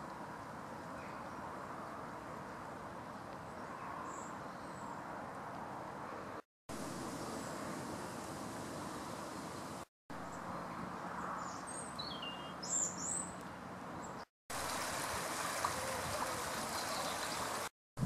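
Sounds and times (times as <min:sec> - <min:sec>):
outdoor background noise: 0:00.0 - 0:17.7
bird chirping: 0:11.4 - 0:13.4, 0:16.7 - 0:17.6
stream rushing: 0:14.5 - 0:17.7.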